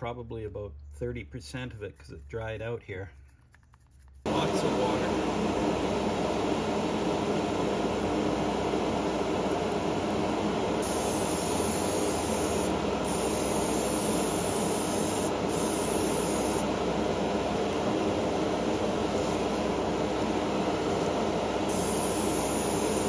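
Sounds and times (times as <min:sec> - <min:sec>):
mechanical hum: 0:03.1 - 0:23.0
airbrush spraying hiss: 0:10.8 - 0:16.7, 0:21.7 - 0:23.0.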